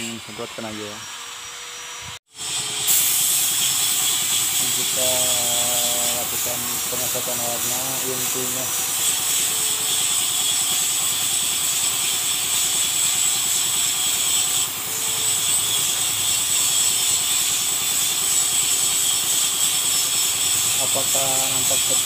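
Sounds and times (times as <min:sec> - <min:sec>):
paint spray gun hissing: 0:02.3 - 0:22.0.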